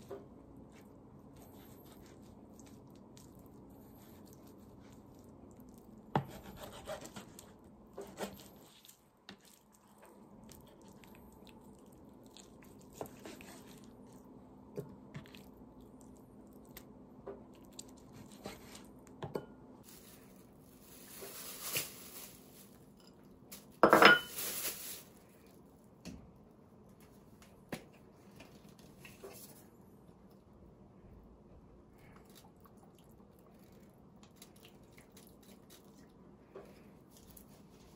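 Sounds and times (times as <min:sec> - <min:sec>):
rustling noise: 0:19.8 - 0:25.5.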